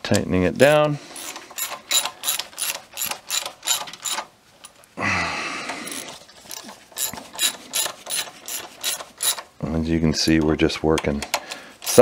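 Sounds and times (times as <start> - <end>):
ratchet wrench clicking: 1.2 - 4.2, 7.0 - 9.4.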